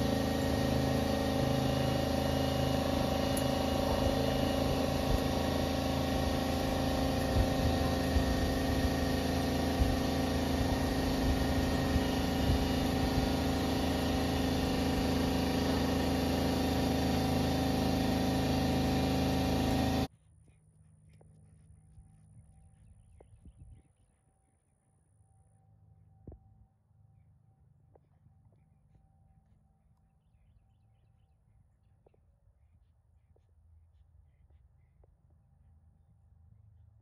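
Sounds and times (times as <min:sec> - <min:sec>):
machine humming: 0:00.0 - 0:20.1.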